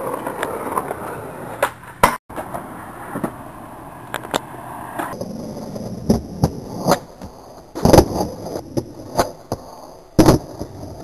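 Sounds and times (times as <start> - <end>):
skateboard wheels rolling: 0.0 - 11.0
skateboard clacking on ground: 4.1 - 11.0.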